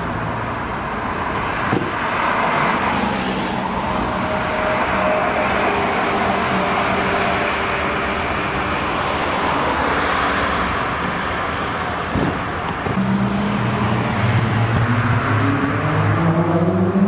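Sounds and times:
passing cars tyre noise: 0.0 - 17.0
car engine low note: 12.9 - 17.0.

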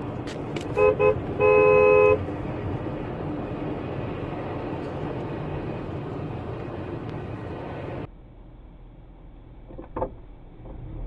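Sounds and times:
car driving along road: 0.0 - 11.0
car horn honk: 0.7 - 2.3.

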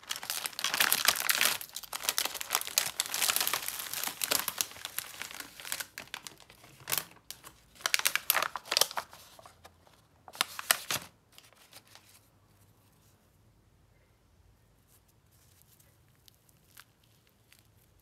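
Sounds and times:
plastic packaging crinkling: 0.0 - 12.2, 15.5 - 18.0.

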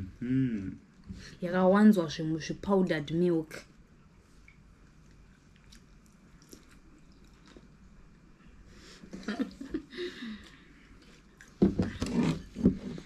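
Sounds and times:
people chewing and mouth sounds: 0.0 - 1.3, 4.3 - 12.4.

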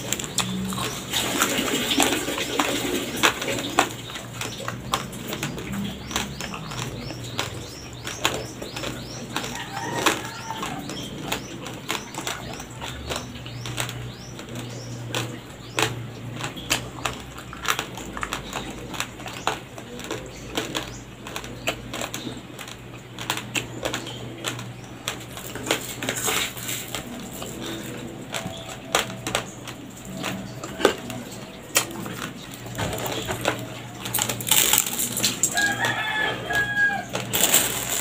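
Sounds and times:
chewing raw rice crunches: 0.0 - 38.0.

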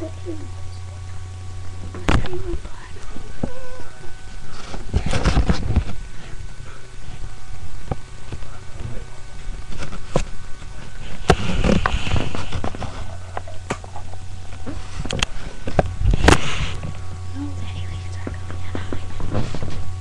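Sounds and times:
steady low hum: 0.0 - 20.0
microphone handling noise: 3.4 - 17.4, 18.2 - 19.9.

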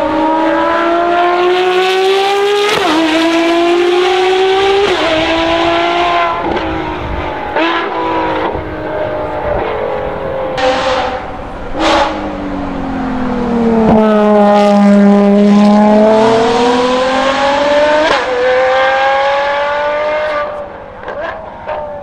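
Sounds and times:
racing engine accelerating: 0.0 - 22.0.

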